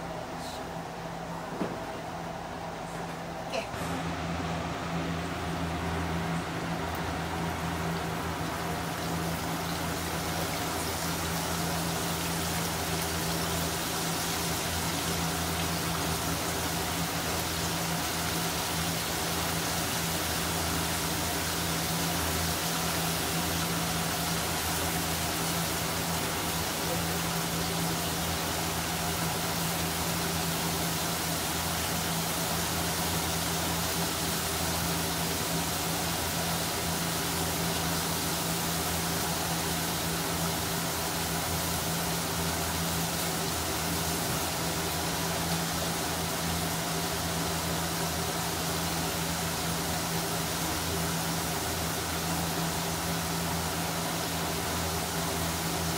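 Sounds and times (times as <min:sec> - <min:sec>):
oil sizzling deep-frying fish: 0:04.0 - 0:55.9.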